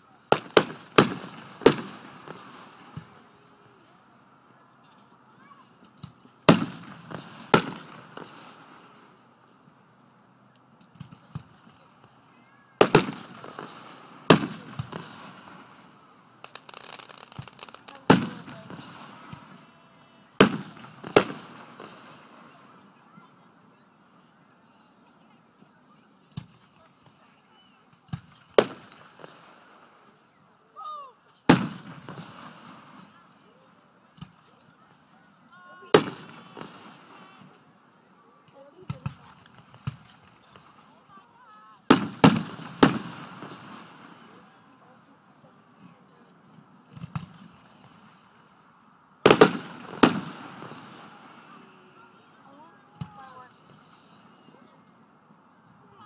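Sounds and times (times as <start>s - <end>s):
fireworks bangs: 0.3s - 3.6s, 5.9s - 9.1s, 10.8s - 23.2s, 28.0s - 30.1s, 31.5s - 33.5s, 34.1s - 37.6s, 38.8s - 41.1s, 41.8s - 44.5s, 46.8s - 48.4s, 49.2s - 54.4s
firework shells bursting: 16.4s - 19.6s, 49.2s - 51.4s.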